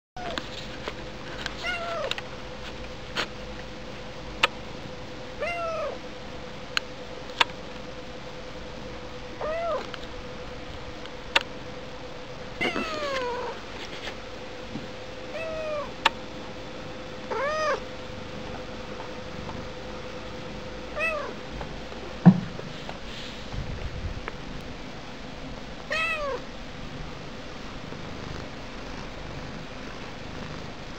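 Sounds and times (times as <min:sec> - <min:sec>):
faint steady hum: 0:00.2 - 0:30.9
cat meowing: 0:01.6 - 0:02.1, 0:05.4 - 0:06.0, 0:09.4 - 0:09.9, 0:12.6 - 0:13.6, 0:15.3 - 0:15.9, 0:17.3 - 0:17.8, 0:20.9 - 0:21.4, 0:25.9 - 0:26.4.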